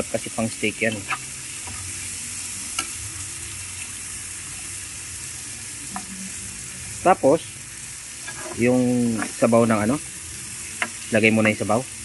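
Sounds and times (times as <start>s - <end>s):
onions sizzling in a frying pan: 0.0s - 12.0s
metal spatula stirring: 8.2s - 9.5s.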